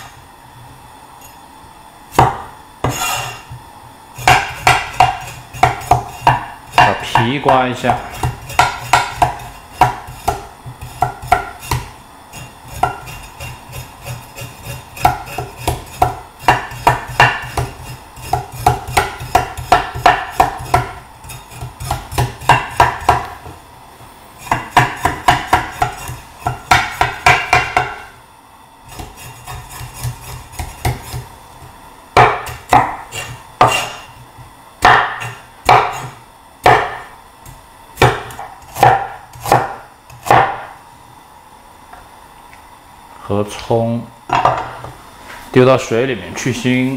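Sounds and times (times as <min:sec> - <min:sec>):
cleaver scraping ginger skin: 0:08.0 - 0:19.7, 0:28.9 - 0:31.3.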